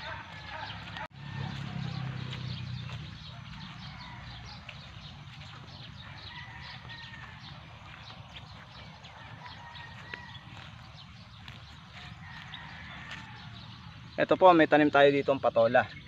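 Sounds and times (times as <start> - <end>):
footsteps on grass and soil: 0.0 - 14.2
birds chirping: 0.0 - 16.0.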